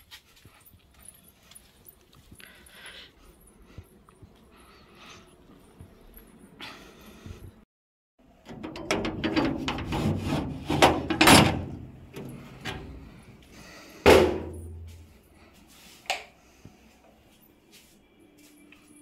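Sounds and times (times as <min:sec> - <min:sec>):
metal door banging open: 0:08.5 - 0:13.0, 0:14.1 - 0:14.7.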